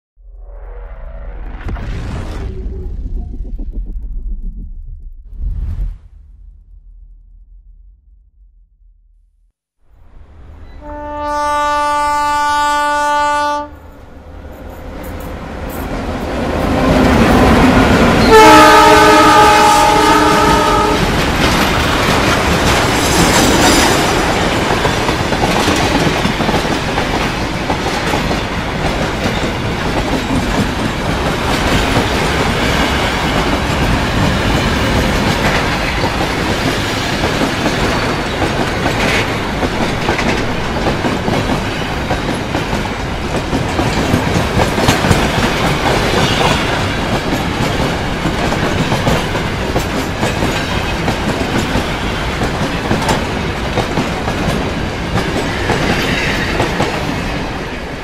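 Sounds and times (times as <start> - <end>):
train wheels rumbling on rails: 14.2 - 58.0.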